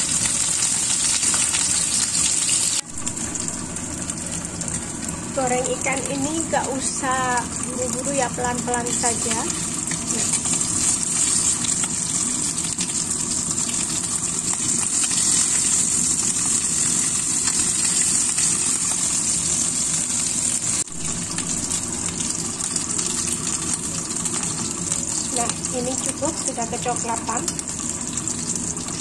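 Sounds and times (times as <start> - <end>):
fish sizzling in oil: 0.0 - 29.0
low steady rumble: 2.8 - 11.4.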